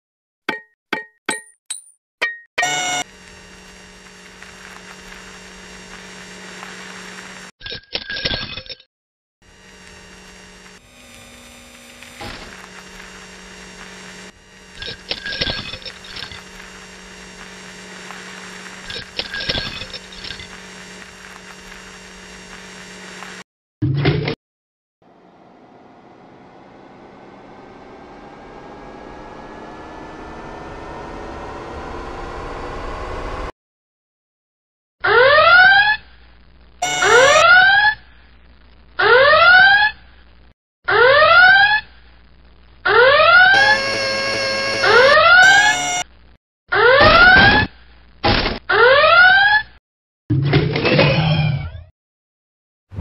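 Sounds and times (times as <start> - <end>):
robot electric hum: 2.6 - 7.5, 9.4 - 23.4, 25.1 - 33.5, 36.8 - 37.6, 43.0 - 46.0
mechanical clicks and whirs: 9.7 - 23.4, 43.6 - 46.0
rocket engine rumble and whine: 25.0 - 33.5.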